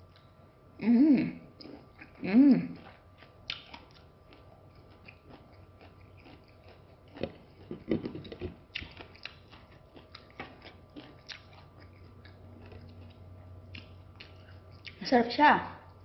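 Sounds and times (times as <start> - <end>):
wet chewing mouth clicks: 1.6 - 8.1, 8.7 - 15.0.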